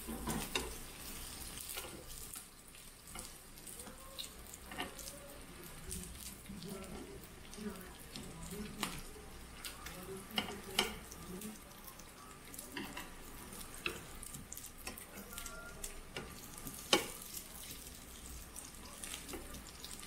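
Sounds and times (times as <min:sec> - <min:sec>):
meat sizzling on a grill pan: 0:00.0 - 0:20.0
metal tongs clicking on pan: 0:01.6 - 0:02.5, 0:08.2 - 0:11.2, 0:12.7 - 0:13.2, 0:13.8 - 0:17.4.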